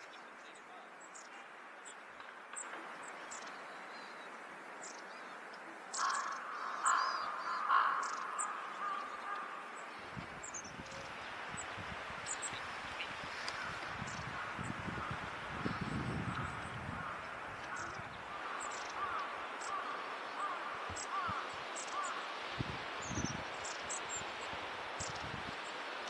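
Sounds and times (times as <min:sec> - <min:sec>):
wind rumbling on microphone: 0:09.1 - 0:19.2, 0:20.4 - 0:25.8.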